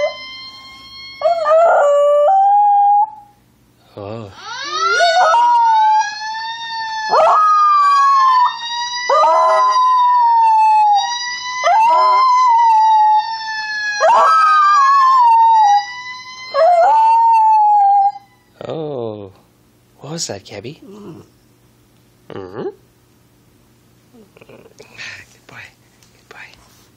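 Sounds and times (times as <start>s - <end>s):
fire truck siren wailing: 0.0s - 3.1s, 4.3s - 18.3s
dog howling: 4.4s - 6.1s, 7.0s - 11.0s, 11.6s - 13.2s, 14.0s - 15.8s, 16.5s - 18.3s.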